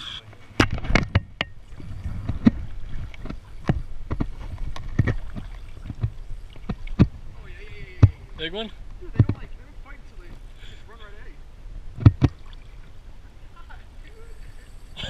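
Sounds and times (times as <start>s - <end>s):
water sloshing around legs: 1.6s - 7.2s, 12.1s - 13.0s.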